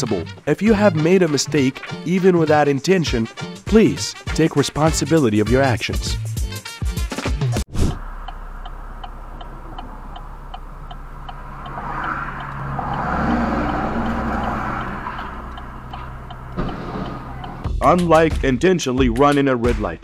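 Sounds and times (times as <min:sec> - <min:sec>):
passing truck: 0:07.8 - 0:17.7
car engine idling: 0:08.0 - 0:17.7
turn signal ticking: 0:08.0 - 0:17.7.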